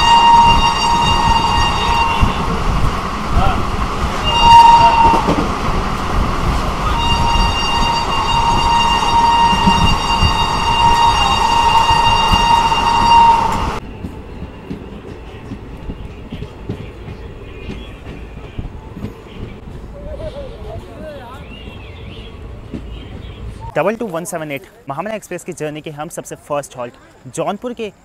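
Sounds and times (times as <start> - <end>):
train horn blasts: 0.0 - 2.6, 4.2 - 5.5, 6.8 - 13.8
train rumble and clatter: 0.0 - 23.8
coaches rolling on rails: 0.0 - 28.0.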